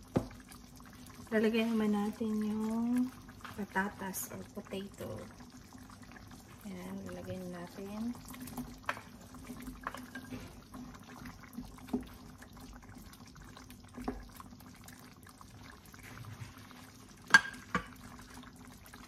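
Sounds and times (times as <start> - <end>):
spoon knocking on pan: 0.1 - 0.4, 17.3 - 18.0.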